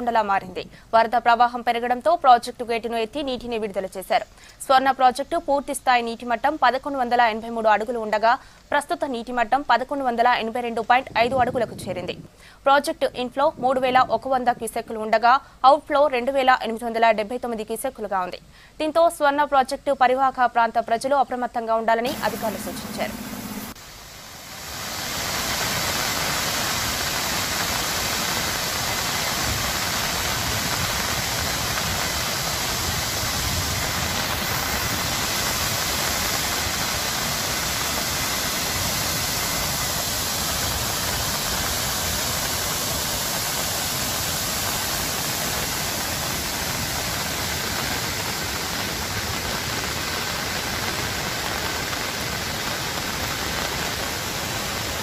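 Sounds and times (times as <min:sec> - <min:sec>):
water rushing through spillway: 0:22.1 - 0:55.0.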